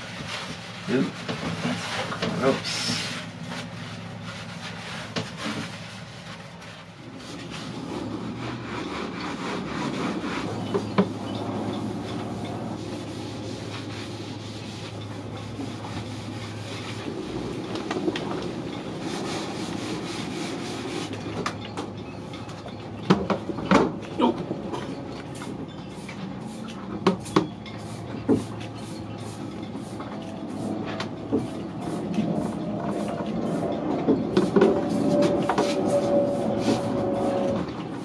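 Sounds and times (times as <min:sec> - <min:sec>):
rough scrubbing scrape: 0:00.0 - 0:10.8, 0:34.4 - 0:37.7.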